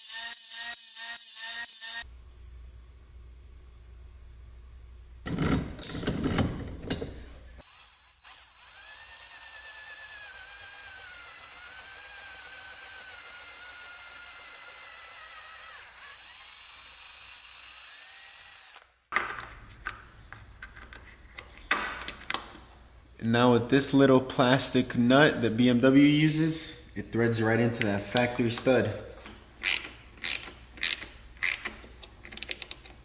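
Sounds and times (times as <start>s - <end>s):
power drill drilling metal: 7.6s - 18.8s.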